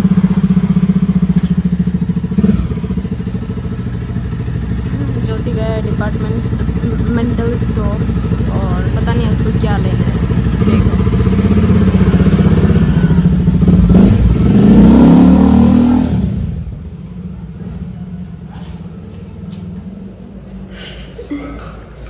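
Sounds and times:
vehicle engine revving: 0.0s - 20.2s.

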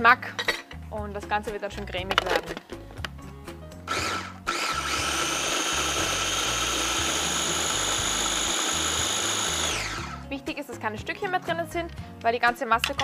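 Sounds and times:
food chopper motor whining: 3.8s - 10.2s.

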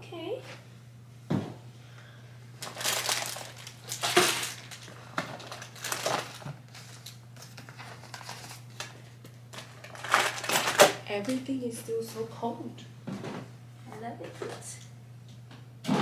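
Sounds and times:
plastic packaging crinkling: 2.6s - 9.0s, 9.6s - 11.0s.

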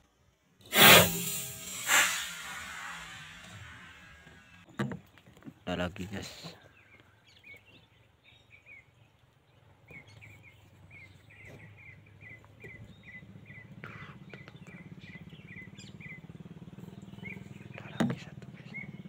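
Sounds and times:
bird chirping: 5.6s - 19.0s.

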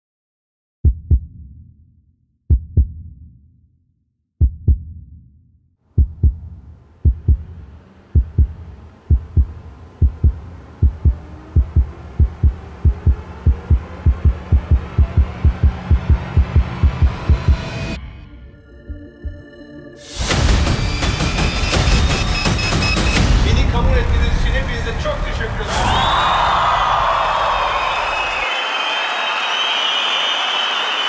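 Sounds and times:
heartbeat thumps: 0.8s - 1.5s, 2.5s - 3.2s, 4.4s - 5.1s, 6.0s - 18.0s, 18.8s - 19.6s.

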